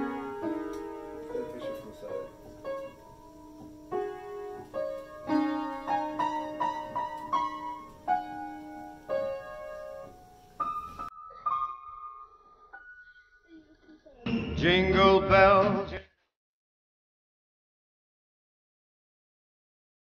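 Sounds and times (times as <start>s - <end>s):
piano notes struck at random: 0.0s - 13.2s.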